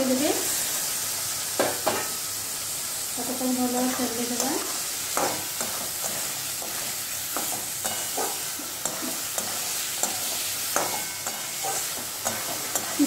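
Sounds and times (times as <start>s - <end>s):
frying sizzle: 0.0s - 13.0s
spatula scraping a metal pan: 3.9s - 13.0s.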